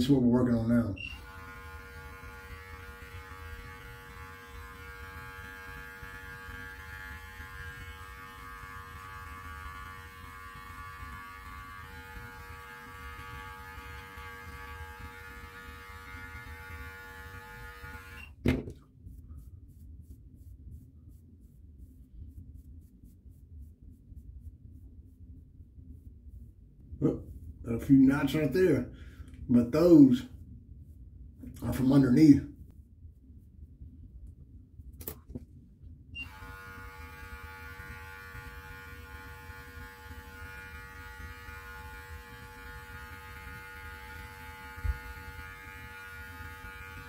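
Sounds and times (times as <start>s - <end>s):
electric beard clippers humming: 1.0s - 18.4s, 36.2s - 47.0s
brush strokes through beard: 18.8s - 28.7s.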